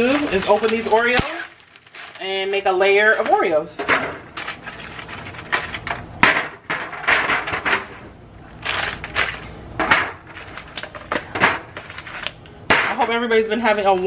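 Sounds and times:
plastic packet crinkling: 0.0s - 3.2s, 4.2s - 5.9s, 8.5s - 9.5s, 10.4s - 11.1s.

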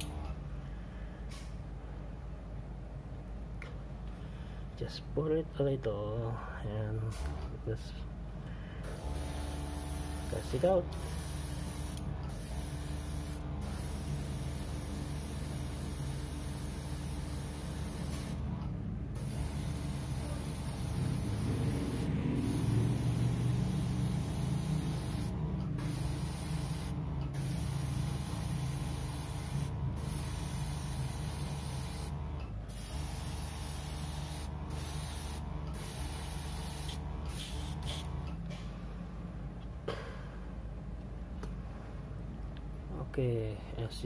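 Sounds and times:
steady low hum: 0.0s - 44.0s
airbrush hissing: 8.8s - 18.4s, 19.2s - 38.1s.

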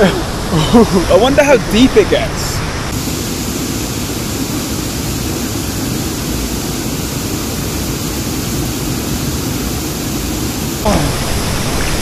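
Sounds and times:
waterfall rushing: 10.2s - 12.0s.

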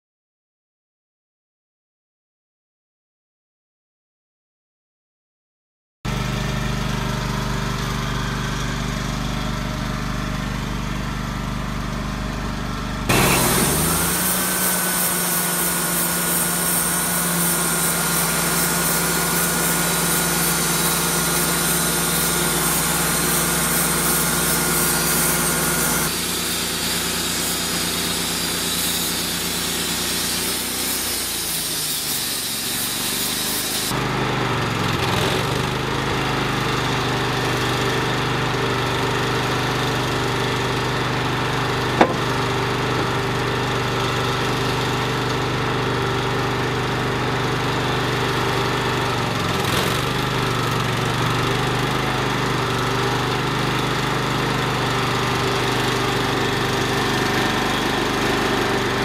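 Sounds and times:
sawmill engine running: 6.1s - 59.0s
band saw blade whine: 13.1s - 34.0s.

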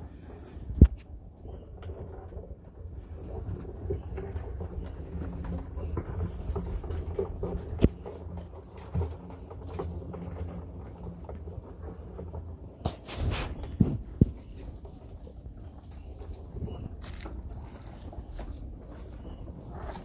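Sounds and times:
crabs crawling over plastic: 0.0s - 20.0s.

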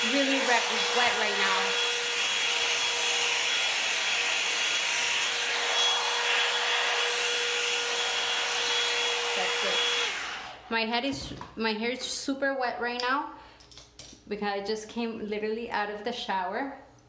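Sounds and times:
hot-air brush dryer blowing: 0.0s - 10.7s.

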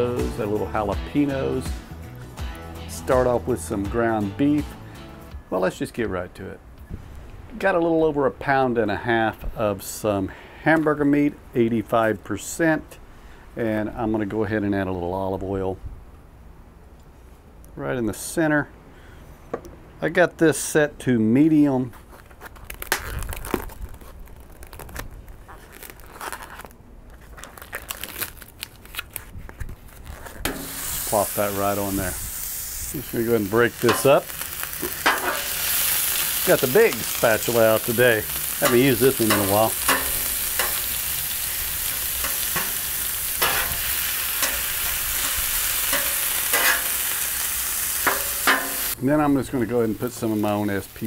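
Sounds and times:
plastic wrap crinkling: 21.9s - 32.3s, 32.9s - 49.0s
metal spatulas scraping griddle: 30.4s - 31.2s, 35.0s - 36.0s, 38.4s - 47.1s, 48.0s - 48.9s
meat sizzling on a griddle: 30.5s - 49.0s, 49.7s - 51.0s.

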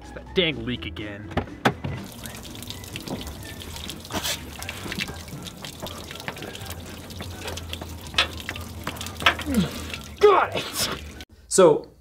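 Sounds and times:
water dripping and splattering: 1.9s - 11.2s.

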